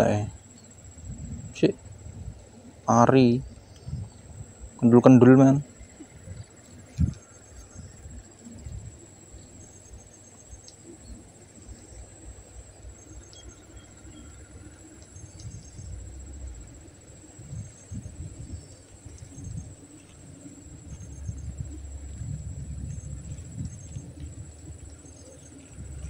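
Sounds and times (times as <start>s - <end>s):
insects trilling: 0.0s - 26.0s
low rumbles: 0.0s - 26.0s.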